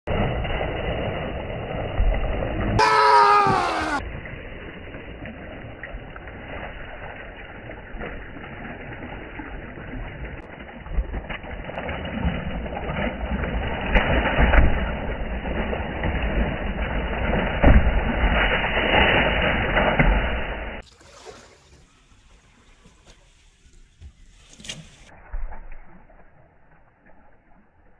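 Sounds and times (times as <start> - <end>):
fish thrashing and splashing: 4.7 - 21.6.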